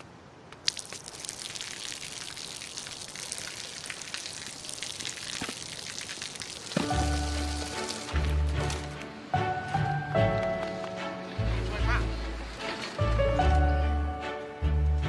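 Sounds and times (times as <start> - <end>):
water splashing on pavement: 0.6 - 9.0.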